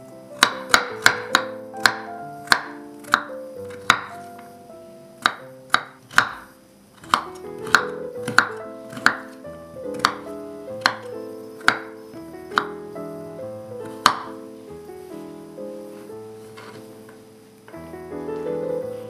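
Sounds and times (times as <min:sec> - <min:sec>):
instrumental background music: 0:00.0 - 0:19.0
knife tapping on wooden board: 0:00.4 - 0:04.5, 0:05.2 - 0:12.0, 0:13.8 - 0:14.4.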